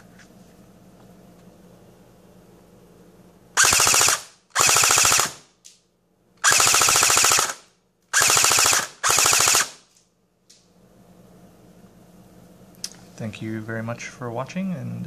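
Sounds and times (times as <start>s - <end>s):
airsoft gun firing bursts: 3.6s - 5.5s, 6.4s - 9.9s.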